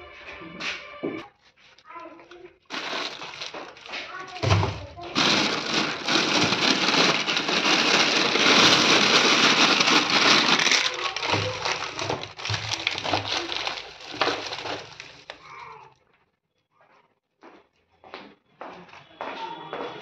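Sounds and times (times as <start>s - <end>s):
plastic bags rustling and crinkling: 2.6s - 15.8s.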